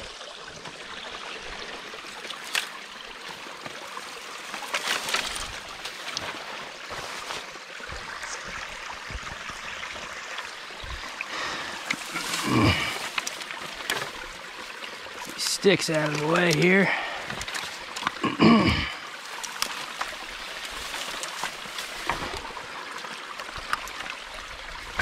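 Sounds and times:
stream water running: 0.0 - 25.0.

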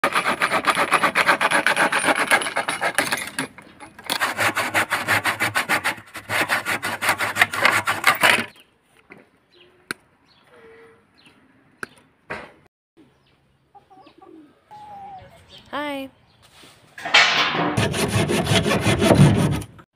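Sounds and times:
hand saw cutting wood: 0.0 - 8.6, 17.8 - 19.9.

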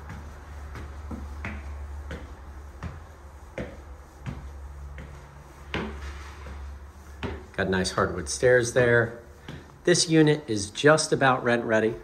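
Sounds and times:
footsteps on wooden stairs: 0.0 - 12.0.

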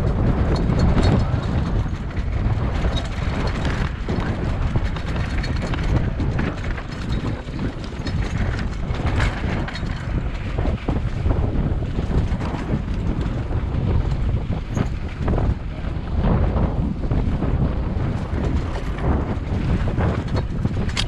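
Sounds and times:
bike rattling over rough ground: 0.0 - 21.0
wind rushing over microphone: 0.0 - 21.0.

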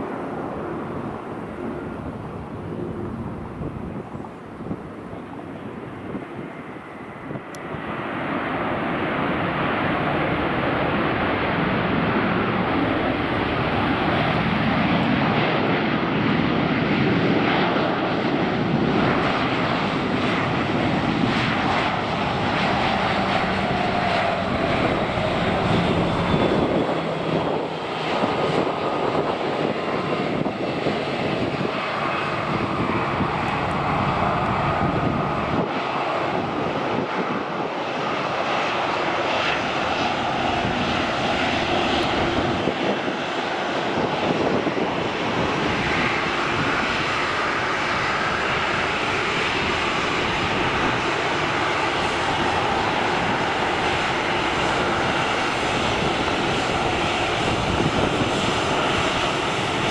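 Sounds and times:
jet engines rushing: 0.0 - 59.9
faint engine whine: 17.4 - 59.9.

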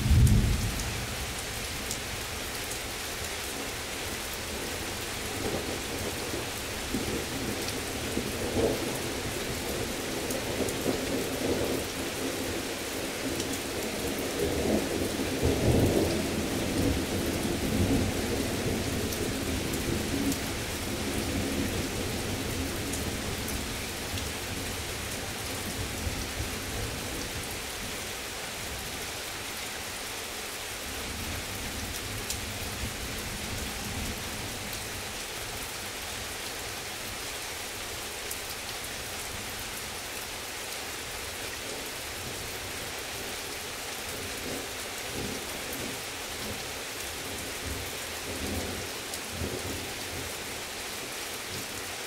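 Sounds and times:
thunder rumbling: 0.0 - 1.4
heavy rain: 0.0 - 52.0.

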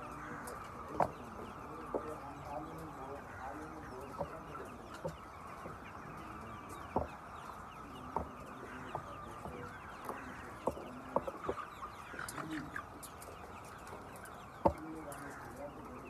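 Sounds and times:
chickens clucking: 0.0 - 16.0
sharp taps: 14.6 - 15.3.

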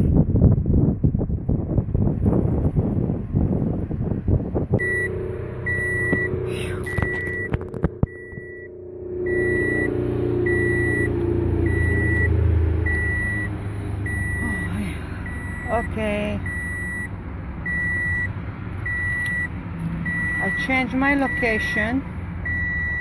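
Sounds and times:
engine low rumble: 0.0 - 23.0
car warning chime beeping: 4.8 - 23.0.

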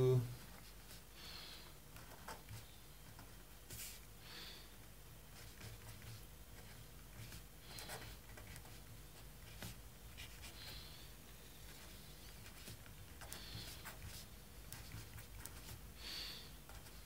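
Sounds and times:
pen scratching on paper: 5.3 - 10.9, 11.7 - 15.8.

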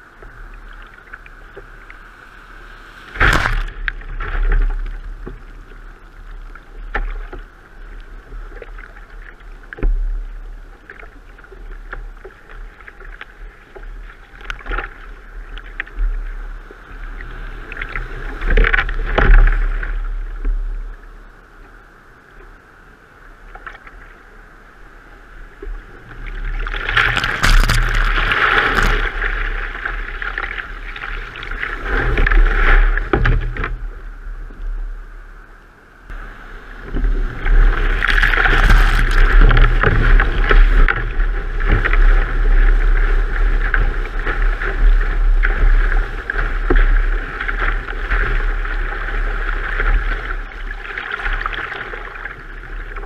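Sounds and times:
surf rushing and splashing: 0.0 - 7.2, 25.0 - 33.8, 36.1 - 53.0
paddle splashes: 0.0 - 16.0, 26.1 - 33.8, 36.1 - 53.0.

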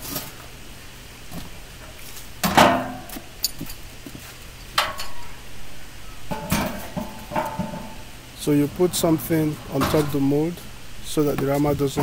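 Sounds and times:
loud metal clank: 2.4 - 3.1, 6.3 - 8.1, 8.9 - 10.6.

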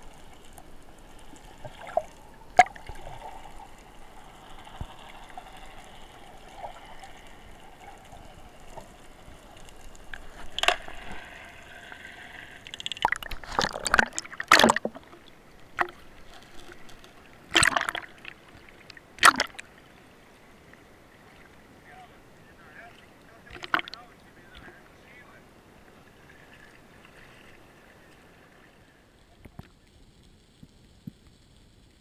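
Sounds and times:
seawater sloshing and splashing: 0.0 - 19.7
faint steady hiss: 0.0 - 32.0.

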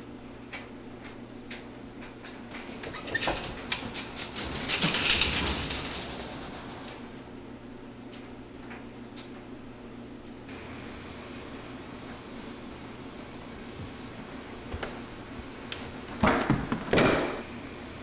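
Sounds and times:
wire cart rattling across floor: 2.8 - 7.1.

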